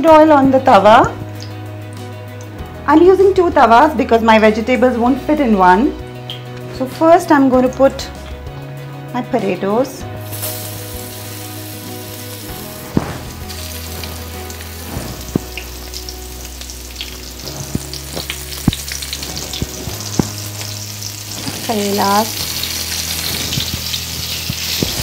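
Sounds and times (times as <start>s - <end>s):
food sizzling in oil: 10.0s - 25.0s.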